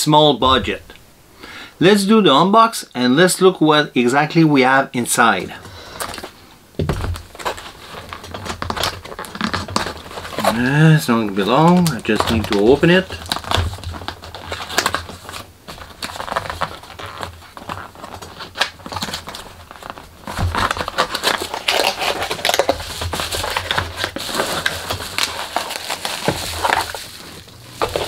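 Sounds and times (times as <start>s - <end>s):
bubble wrap crinkling: 5.2s - 28.0s
cardboard box flap tearing: 11.6s - 28.0s.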